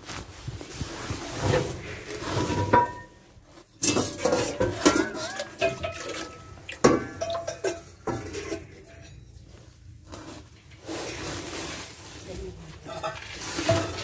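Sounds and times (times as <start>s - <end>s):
metal pots clanking together: 2.2s - 9.4s, 12.8s - 14.0s.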